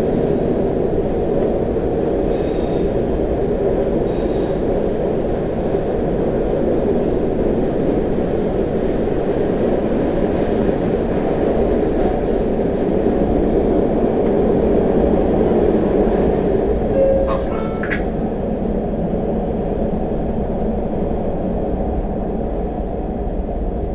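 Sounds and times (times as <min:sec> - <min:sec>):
subway car roaring at speed: 0:00.0 - 0:23.9.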